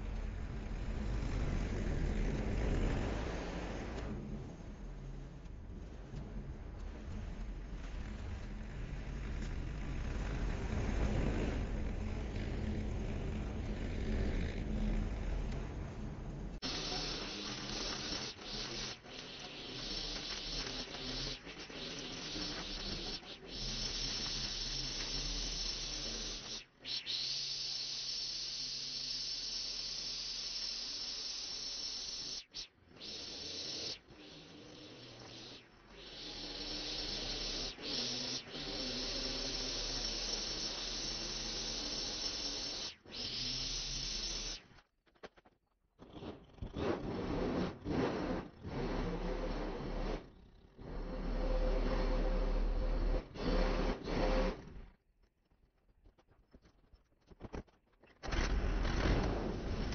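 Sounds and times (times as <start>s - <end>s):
string trimmer cutting grass: 16.6s - 26.6s, 36.2s - 44.6s
leaf blower: 16.6s - 26.7s, 33.0s - 44.6s, 50.8s - 54.6s.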